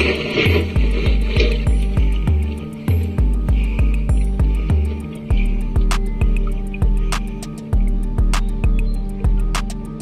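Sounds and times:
background music with bass beat: 0:00.0 - 0:10.0
light ticking percussion: 0:00.0 - 0:10.0.

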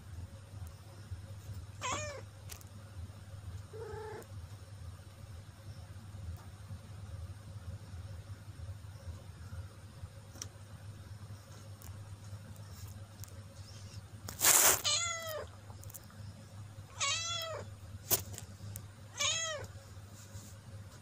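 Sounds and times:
cat meowing: 0:01.8 - 0:02.2, 0:03.7 - 0:04.2, 0:14.8 - 0:15.5, 0:16.9 - 0:17.7, 0:19.1 - 0:19.7.

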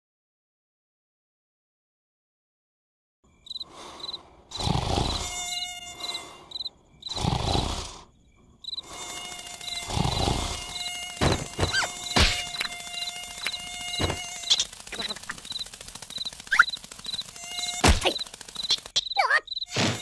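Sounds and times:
crickets chirping: 0:03.2 - 0:20.0
mosquito buzzing whine: 0:03.3 - 0:20.0
snoring: 0:04.5 - 0:06.3, 0:07.1 - 0:08.1, 0:09.8 - 0:10.8
sharp knocks: 0:11.2 - 0:12.7.

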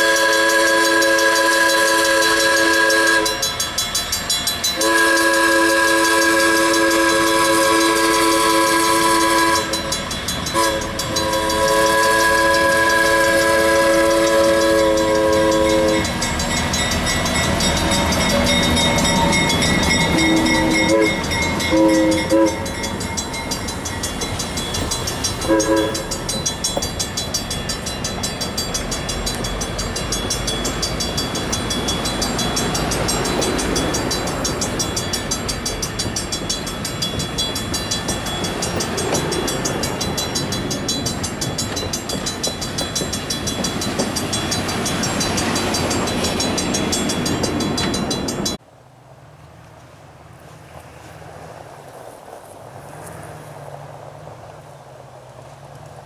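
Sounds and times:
train air whistle: 0:00.0 - 0:03.6, 0:04.8 - 0:16.1, 0:18.3 - 0:22.8, 0:25.4 - 0:26.3
crossing bell ringing: 0:00.0 - 0:48.6
train wheels rumbling on rails: 0:00.0 - 0:48.6.

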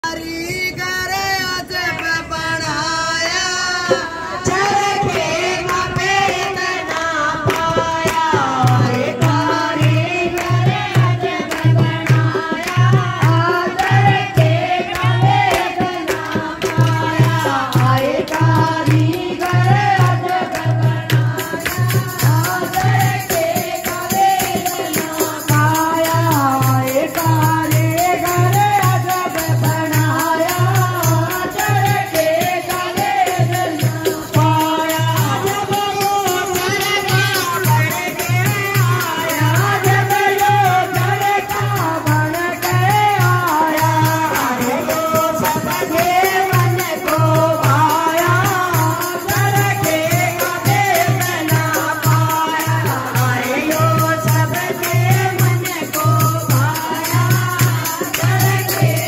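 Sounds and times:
sharp rhythmic percussion: 0:00.0 - 0:59.0
women singing devotional song: 0:00.0 - 0:59.0.

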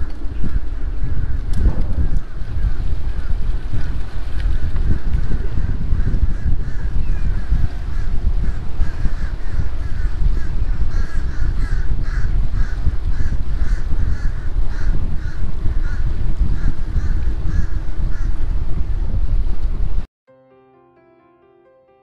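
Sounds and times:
moving boat: 0:00.0 - 0:20.0
wind rumbling: 0:00.0 - 0:20.1
crows cawing: 0:05.6 - 0:18.4.

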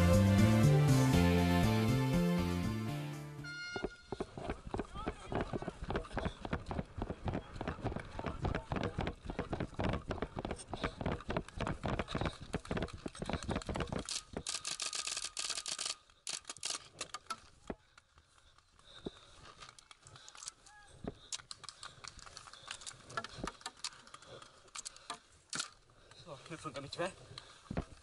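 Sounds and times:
running footsteps on grass: 0:03.6 - 0:14.7
faint clicks: 0:11.0 - 0:28.0.

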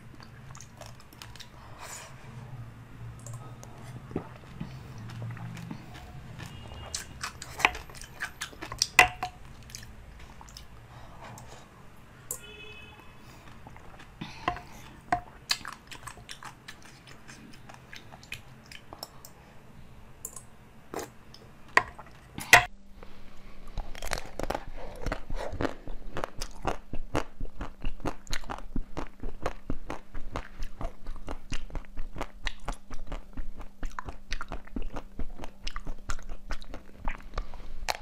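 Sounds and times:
jelly sucked and chewed: 0:23.8 - 0:38.0.

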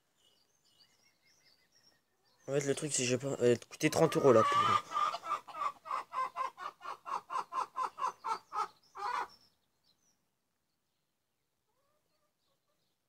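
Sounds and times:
faint chirp: 0:00.0 - 0:03.0
chicken clucking: 0:03.8 - 0:09.4.

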